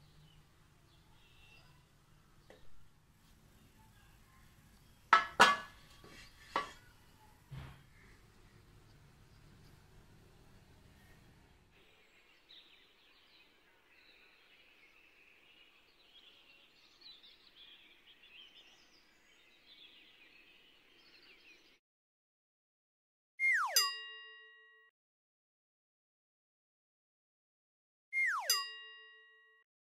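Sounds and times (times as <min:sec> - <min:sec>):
faint birdsong chirping: 0:00.0 - 0:21.8.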